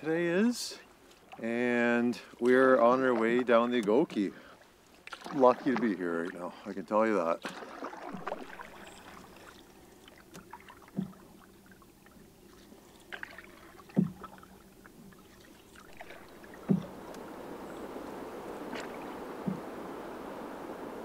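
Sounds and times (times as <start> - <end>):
paddle stroke thuds: 10.3 - 11.4, 13.1 - 14.6, 15.7 - 20.0
steady hiss: 16.0 - 21.0.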